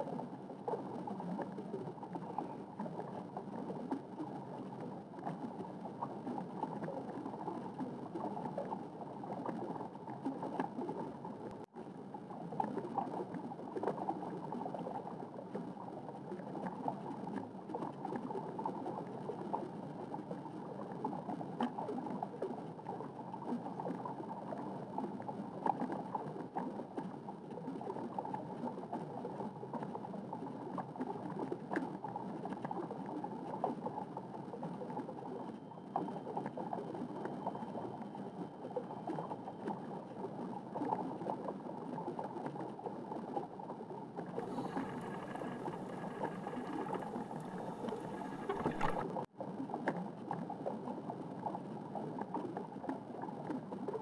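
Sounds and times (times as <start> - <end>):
underwater watery rush and gurgling: 30.6 - 49.3.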